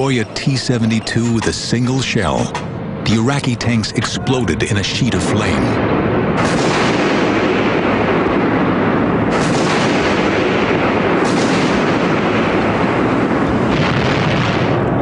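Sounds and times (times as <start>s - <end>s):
continuous battle rumble: 0.0s - 15.0s
explosions: 5.1s - 15.0s
sharp blasts: 5.2s - 15.0s
tank cannon fire: 5.8s - 15.0s.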